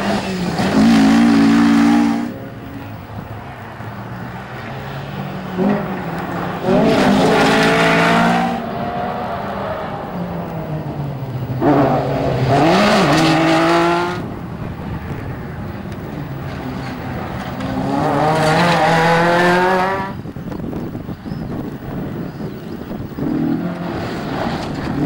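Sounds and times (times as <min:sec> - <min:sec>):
car engine revving hard: 0:00.0 - 0:02.4, 0:06.6 - 0:09.2, 0:11.6 - 0:14.3, 0:17.6 - 0:20.2.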